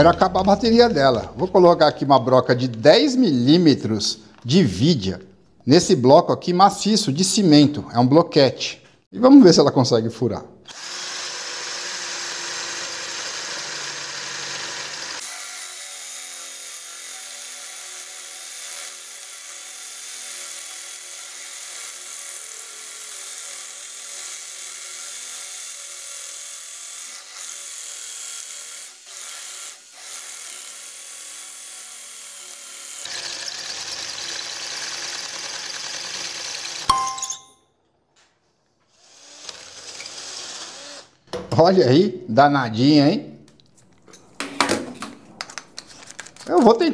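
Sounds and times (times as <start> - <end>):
cordless drill boring into concrete: 10.7 - 36.9, 38.9 - 41.2.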